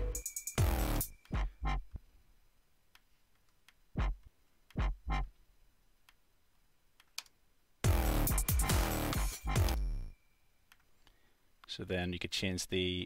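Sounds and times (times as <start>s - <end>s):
synthesized bass notes: 0.0s - 2.0s, 4.0s - 5.3s, 7.8s - 10.1s.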